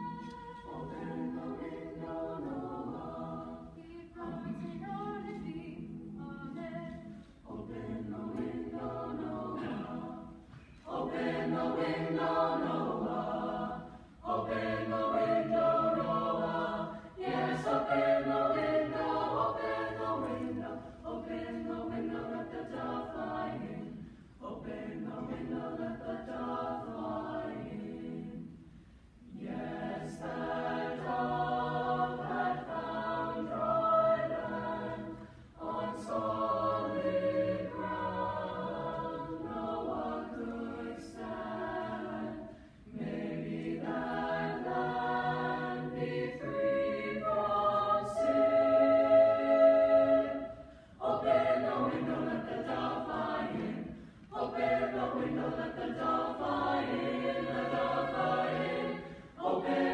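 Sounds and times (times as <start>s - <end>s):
choir singing sustained chords: 0.0s - 59.9s
singers breathing: 50.5s - 51.0s.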